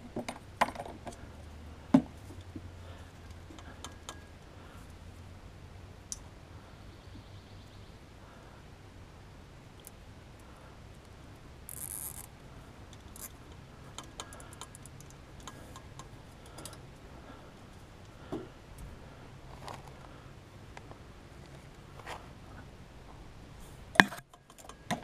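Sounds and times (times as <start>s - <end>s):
zip tie ratchets clicking: 11.7s - 12.3s.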